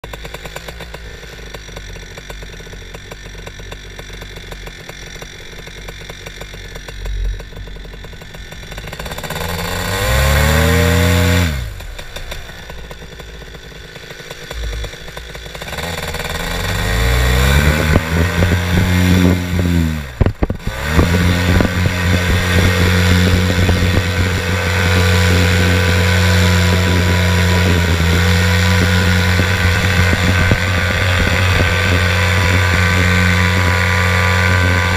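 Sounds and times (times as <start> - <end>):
propeller aircraft engine revving: 0.0 - 34.9.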